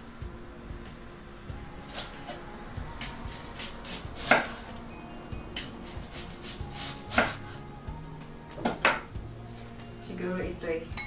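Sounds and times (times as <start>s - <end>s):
soft background music: 0.0s - 11.0s
knife slicing onion on board: 3.0s - 4.6s, 5.6s - 7.4s.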